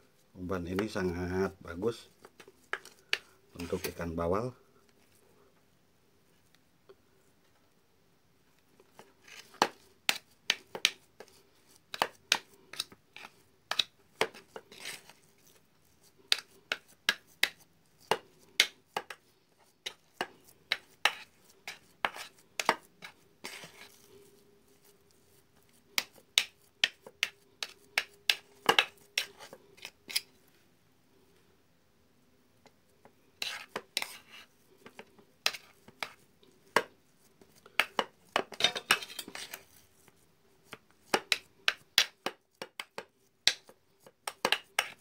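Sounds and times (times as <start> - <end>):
soft rustle: 0.0 - 4.2, 14.1 - 17.0, 19.2 - 31.6, 32.8 - 41.6
metal utensil scraping enamel bowl: 38.5 - 39.7.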